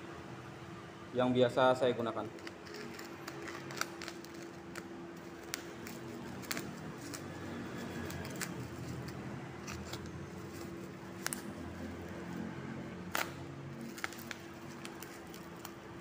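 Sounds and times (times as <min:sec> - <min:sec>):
plastic mailer crinkling and tearing: 0:02.3 - 0:11.8, 0:13.1 - 0:16.0.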